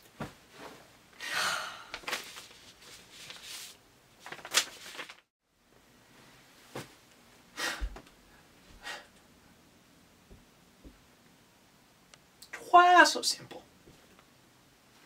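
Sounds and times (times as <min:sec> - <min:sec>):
person breathing out: 0:01.2 - 0:02.0, 0:08.8 - 0:09.1.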